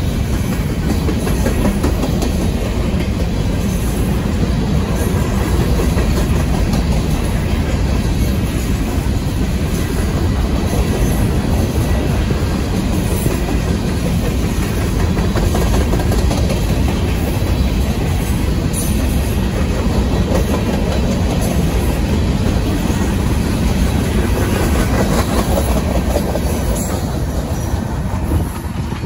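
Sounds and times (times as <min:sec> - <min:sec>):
train cars rolling past: 0:00.0 - 0:29.0.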